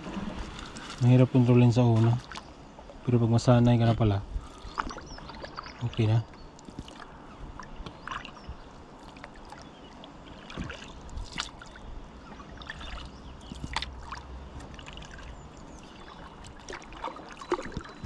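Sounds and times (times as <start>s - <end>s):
kayak paddle strokes in water: 0.0s - 2.5s, 4.4s - 18.0s
water dripping off paddle: 2.2s - 2.5s, 4.4s - 11.8s, 12.4s - 18.0s.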